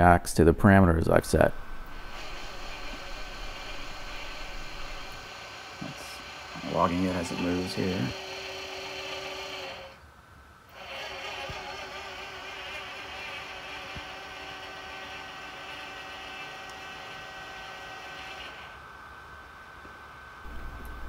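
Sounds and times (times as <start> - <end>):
servo motor whirring: 1.7 - 10.0, 10.7 - 18.8.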